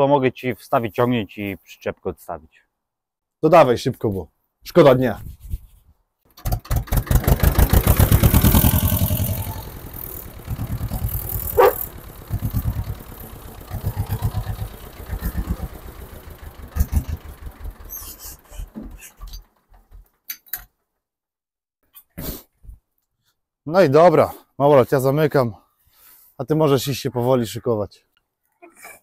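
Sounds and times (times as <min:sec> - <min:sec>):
tractor diesel engine chugging: 0:06.4 - 0:20.1
rising squeal: 0:08.7 - 0:10.3.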